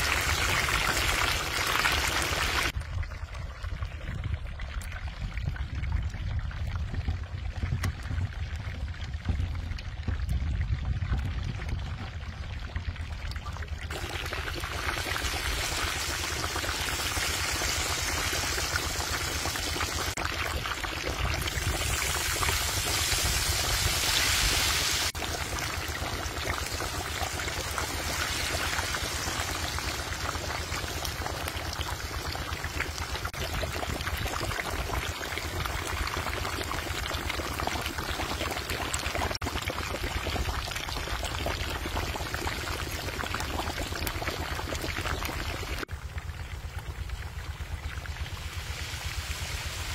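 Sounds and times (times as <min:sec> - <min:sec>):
oil sizzling deep-frying: 0:00.0 - 0:02.8, 0:13.6 - 0:49.9.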